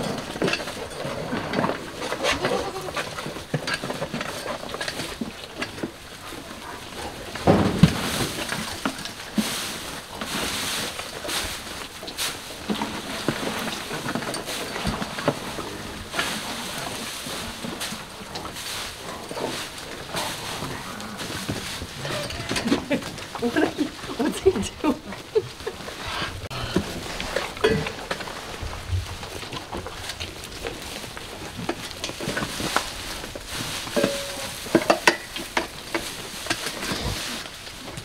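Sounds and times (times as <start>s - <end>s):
goats bleating: 2.2s - 3.1s
hay rustling: 4.3s - 38.0s.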